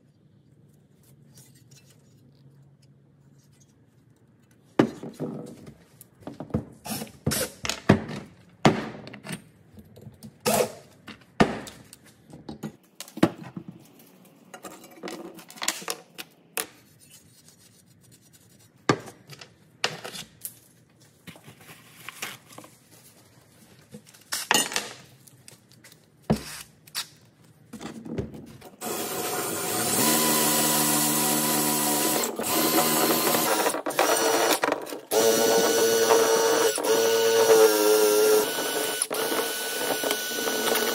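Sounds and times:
drill with wire wheel brush: 28.8s - 40.9s.

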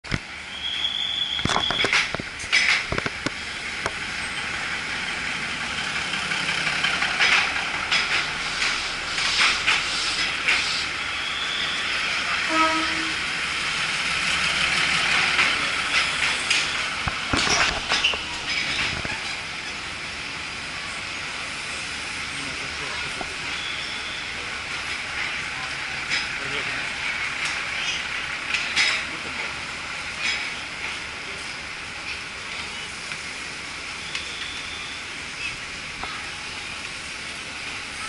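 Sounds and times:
knocks and clanks: 1.4s - 4.0s, 6.8s - 10.7s, 15.1s - 19.4s.

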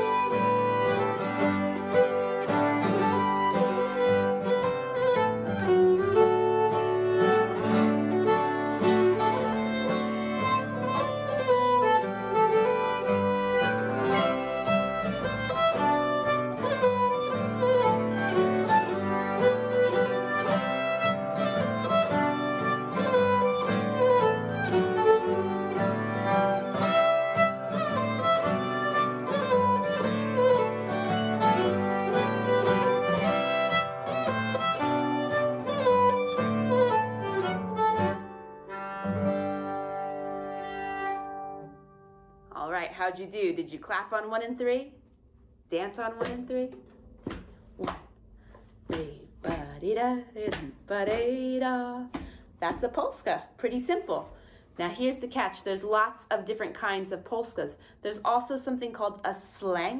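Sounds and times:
keyed fiddle bowed: 0.0s - 41.8s
strummed acoustic guitar: 0.0s - 42.1s.

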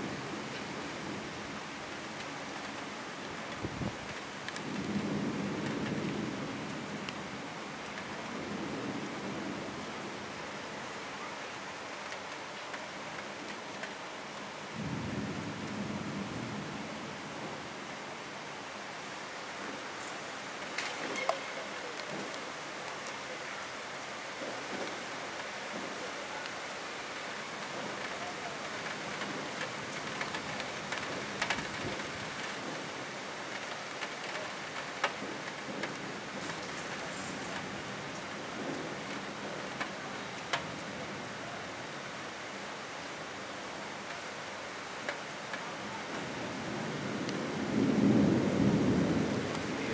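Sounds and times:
heavy rain hissing: 0.0s - 49.9s
thunder rumbling: 2.2s - 10.9s, 14.6s - 17.8s, 27.2s - 41.8s, 44.0s - 49.9s.

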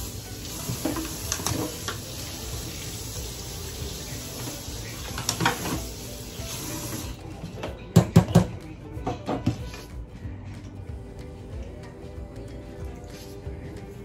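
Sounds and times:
water pouring and splashing in sink: 0.0s - 7.2s.

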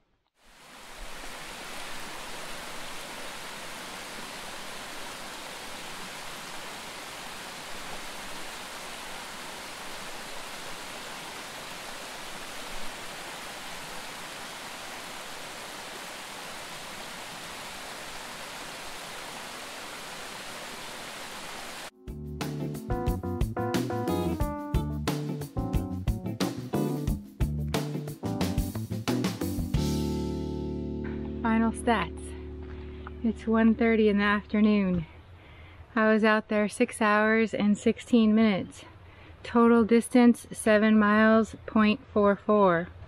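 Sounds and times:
rushing stream water: 0.4s - 21.9s.

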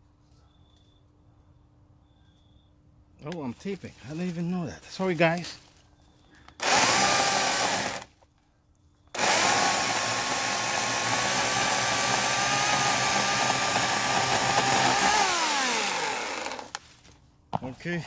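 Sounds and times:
electric chainsaw cutting: 6.6s - 8.1s, 9.2s - 16.8s.

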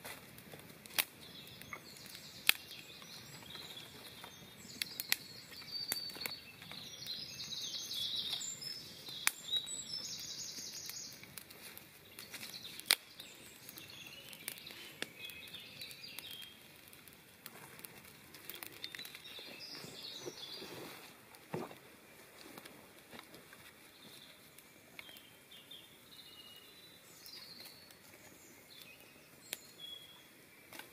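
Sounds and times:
campfire crackling and popping: 0.0s - 30.9s
high chirping calls: 1.2s - 11.2s, 12.0s - 16.7s, 18.7s - 20.9s.

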